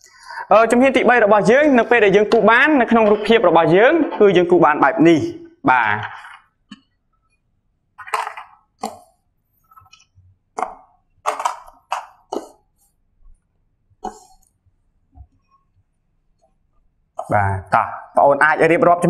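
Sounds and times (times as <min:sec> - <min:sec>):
magnets tapping on whiteboard: 0:08.0 - 0:12.4.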